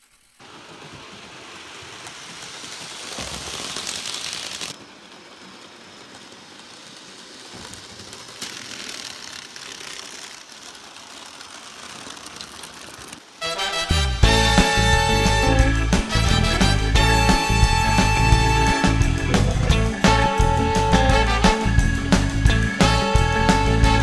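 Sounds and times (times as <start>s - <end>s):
small electric motors whirring: 0.0s - 13.3s
model train wheels on rails: 0.0s - 24.0s.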